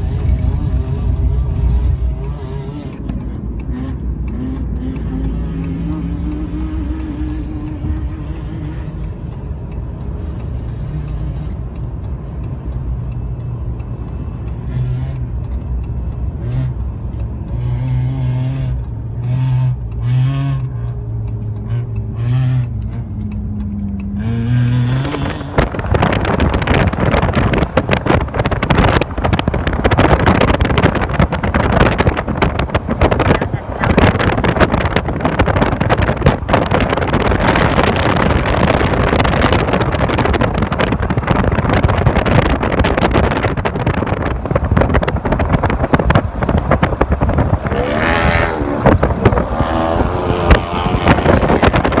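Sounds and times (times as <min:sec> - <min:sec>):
engine drone: 0:00.0 - 0:52.0
road rumble inside vehicle: 0:00.0 - 0:52.0
wind buffeting microphone: 0:24.6 - 0:52.0.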